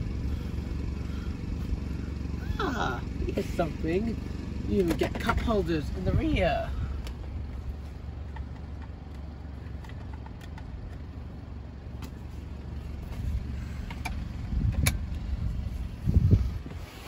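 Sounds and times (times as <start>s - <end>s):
low rumble: 0.0s - 8.8s, 10.8s - 17.0s.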